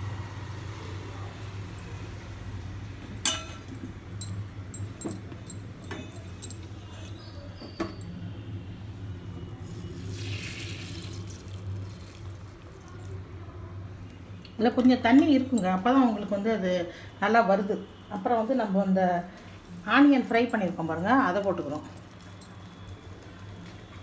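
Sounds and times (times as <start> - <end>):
utensils clinking on steel bowl: 3.2 - 8.1
soft hiss of gravy ladled: 10.0 - 12.3.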